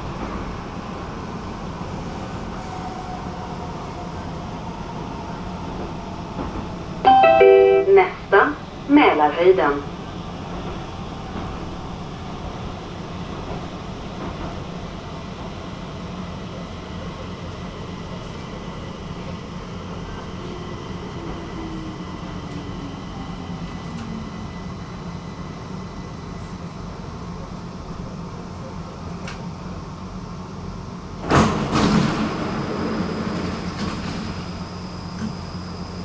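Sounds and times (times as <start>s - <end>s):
metro train running hum: 0.0s - 36.0s
station noise: 7.1s - 10.0s
sliding doors opening burst: 31.2s - 34.7s.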